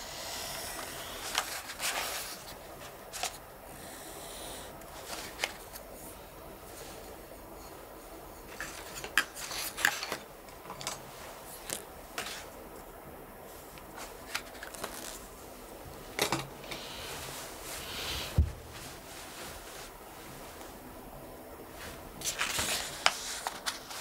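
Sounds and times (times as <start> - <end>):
book pages rustling: 1.2 - 3.4, 8.5 - 12.5, 13.6 - 15.4, 21.8 - 24.0.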